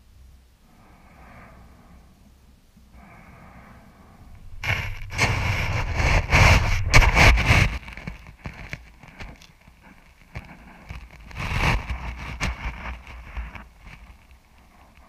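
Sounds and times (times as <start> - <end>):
low rumble: 0.6 - 8.0
sand crunching against camera: 4.4 - 9.0.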